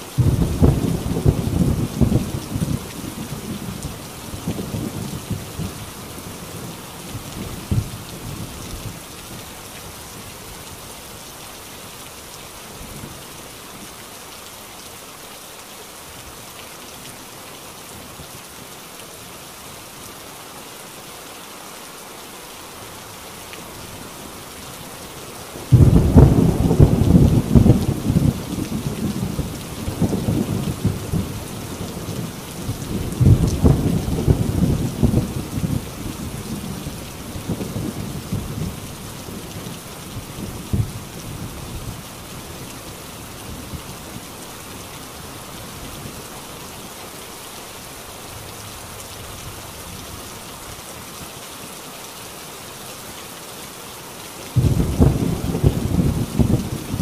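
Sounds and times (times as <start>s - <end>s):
rain on a tin roof: 0.0s - 57.0s
thunder rumbling: 0.2s - 5.8s, 25.7s - 38.8s, 54.6s - 57.0s.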